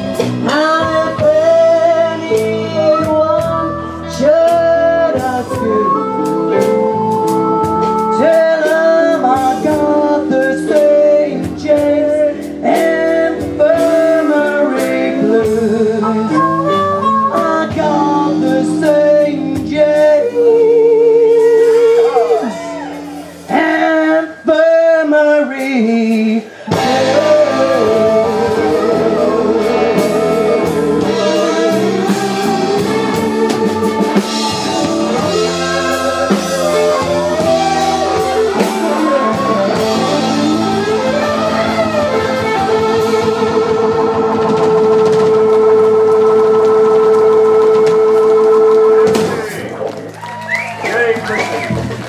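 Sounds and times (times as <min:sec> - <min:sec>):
live blues band: 0:00.0 - 0:52.0
woman singing: 0:00.1 - 0:22.8, 0:23.4 - 0:49.4.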